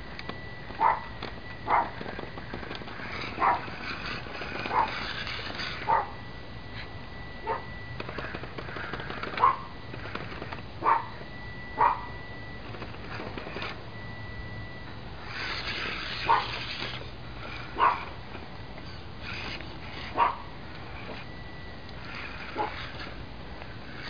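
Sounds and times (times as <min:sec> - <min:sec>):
faint high whine: 0:00.0 - 0:24.0
dog barking: 0:00.8 - 0:01.1, 0:01.7 - 0:02.0, 0:03.4 - 0:03.7, 0:04.7 - 0:05.0, 0:05.9 - 0:06.2, 0:07.4 - 0:07.7, 0:09.4 - 0:09.7, 0:10.8 - 0:11.1, 0:11.8 - 0:12.1, 0:16.2 - 0:16.6, 0:17.8 - 0:18.1, 0:20.1 - 0:20.5, 0:22.6 - 0:22.9.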